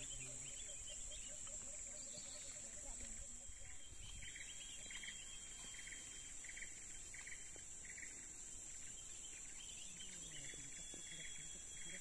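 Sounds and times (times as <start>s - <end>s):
insect high-pitched drone: 0.0s - 12.0s
insect pulsed chirp: 0.0s - 12.0s.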